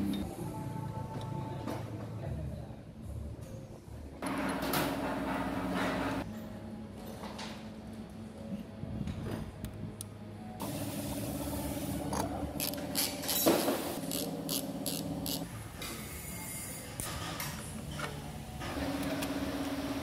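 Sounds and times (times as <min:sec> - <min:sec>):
wrench clicking: 0:12.6 - 0:15.5.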